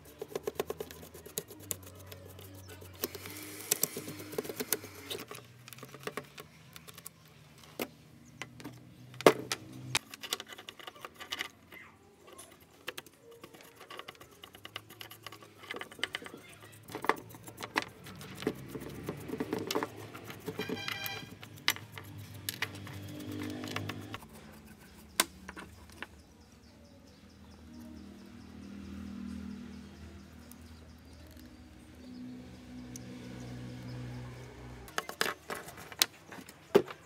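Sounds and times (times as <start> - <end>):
paintbrush scratching: 0.0 - 6.6, 10.0 - 26.0, 34.9 - 36.7.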